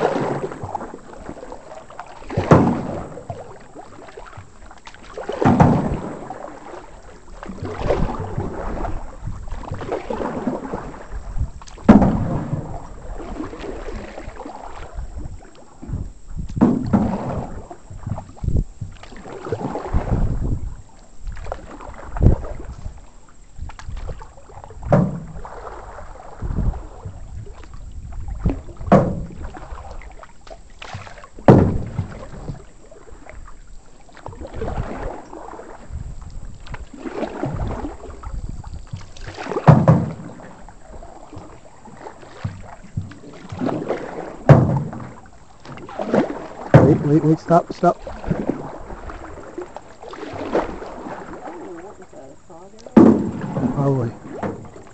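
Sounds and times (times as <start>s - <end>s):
canoe paddles splashing in water: 0.0s - 54.9s
sharp knocks: 31.5s - 32.0s, 39.7s - 40.3s, 44.5s - 45.1s, 46.8s - 47.0s.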